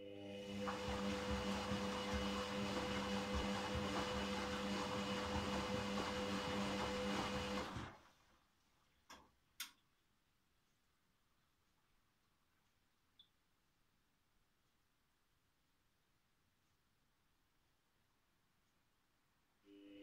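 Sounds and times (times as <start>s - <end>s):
washing machine motor humming: 0.0s - 8.2s.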